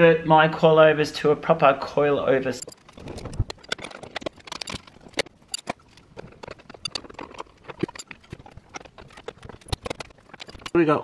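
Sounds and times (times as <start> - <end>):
metallic clicks of hand tools: 2.6 - 8.4.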